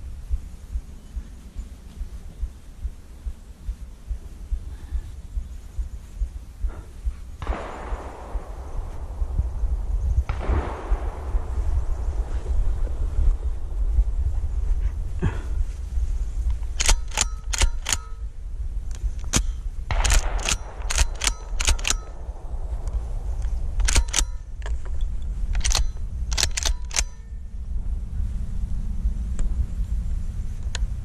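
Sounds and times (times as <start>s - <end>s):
wind rumble on microphone: 0.0s - 31.0s
sharp clicks and knocks: 16.4s - 18.2s, 18.9s - 27.3s.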